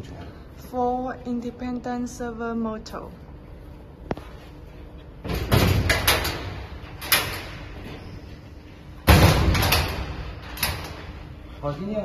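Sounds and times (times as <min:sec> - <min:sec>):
metal cabinet doors rattling: 0:05.2 - 0:07.7, 0:09.0 - 0:11.1
metal door banging shut: 0:05.2 - 0:08.0, 0:09.0 - 0:11.2.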